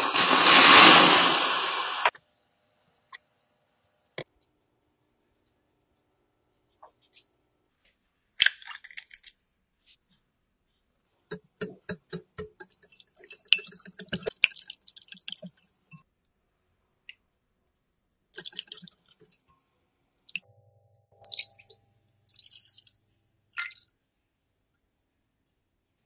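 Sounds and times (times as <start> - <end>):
egg cracking into a glass bowl: 8.4 - 9.4
whisk beating eggs in glass bowl: 11.6 - 15.6.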